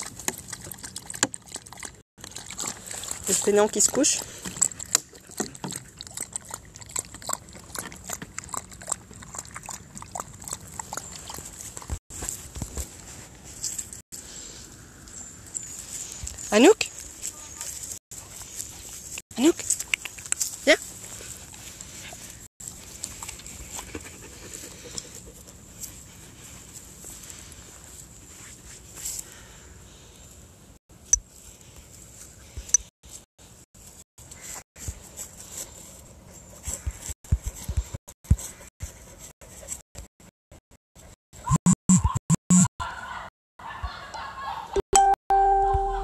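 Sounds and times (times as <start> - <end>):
dog lapping water: 0.0 - 12.0
rustling in grass: 11.3 - 30.3, 31.3 - 37.8
dog panting: 23.0 - 26.6.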